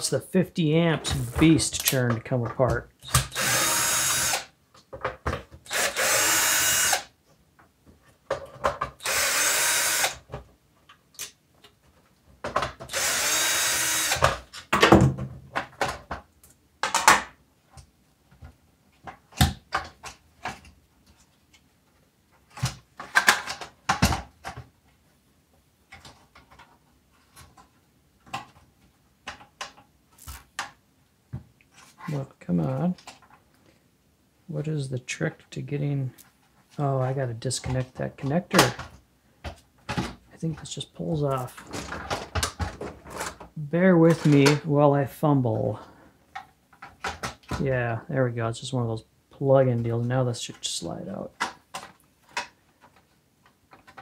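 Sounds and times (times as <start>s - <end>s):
cordless drill spinning: 3.0s - 4.5s, 5.6s - 7.1s, 9.0s - 10.2s, 12.9s - 14.3s.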